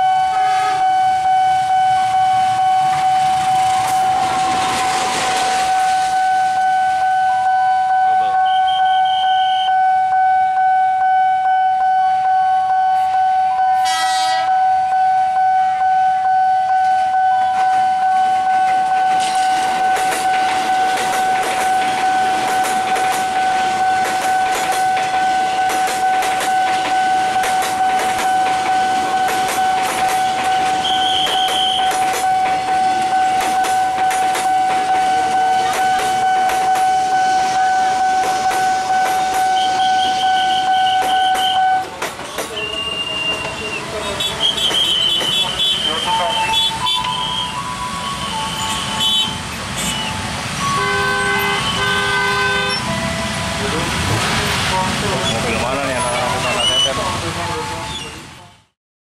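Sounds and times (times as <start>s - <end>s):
train horn blast: 0.0s - 3.3s, 13.1s - 18.2s, 33.1s - 41.9s, 43.0s - 54.1s
level crossing warning siren: 0.0s - 42.0s, 42.8s - 54.4s, 55.7s - 58.2s
train wheels clattering: 18.6s - 37.1s, 38.0s - 47.6s.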